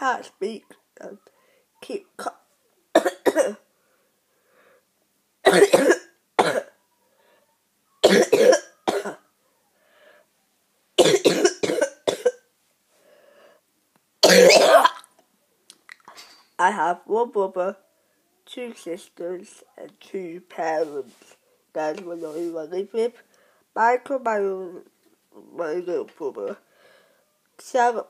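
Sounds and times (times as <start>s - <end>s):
boy coughing: 3.0s - 3.6s, 5.5s - 6.8s, 8.0s - 9.2s, 11.0s - 12.4s, 14.2s - 15.1s.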